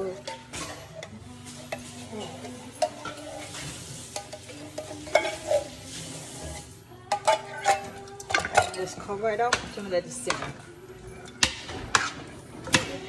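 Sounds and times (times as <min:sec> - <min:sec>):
curry sizzling in pot: 0:00.0 - 0:10.3.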